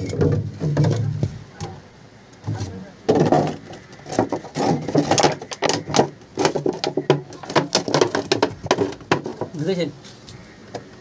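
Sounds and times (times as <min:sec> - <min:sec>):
people talking: 0:00.8 - 0:03.1, 0:06.9 - 0:08.2, 0:09.4 - 0:10.0
plastic jar knocking on brick: 0:03.1 - 0:09.6.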